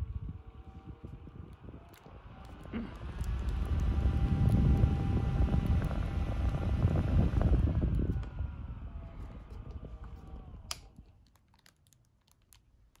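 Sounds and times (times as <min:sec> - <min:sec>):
desk fan air rush: 0:00.0 - 0:10.8
fan motor whine: 0:00.0 - 0:11.1
plastic wrap crinkling: 0:10.9 - 0:13.0.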